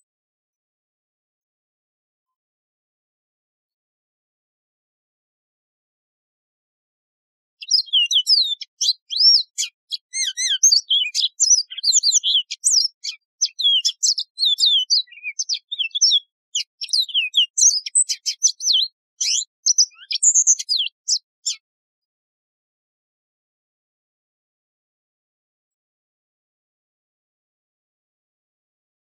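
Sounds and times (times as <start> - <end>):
canary singing: 7.6 - 21.6.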